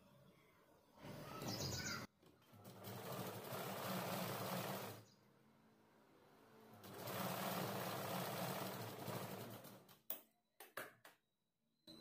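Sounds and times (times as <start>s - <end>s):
sewing machine stitching: 2.4s - 5.1s, 6.5s - 10.0s.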